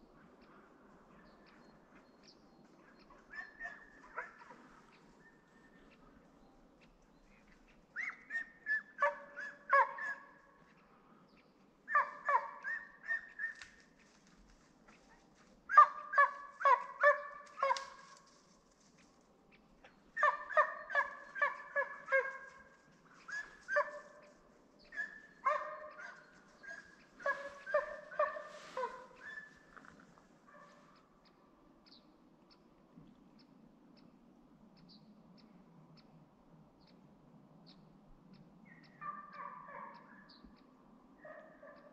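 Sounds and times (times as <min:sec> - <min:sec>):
hunting dog baying: 0:03.1 - 0:05.1, 0:08.0 - 0:10.4, 0:11.9 - 0:13.7, 0:15.3 - 0:18.1, 0:20.2 - 0:31.0.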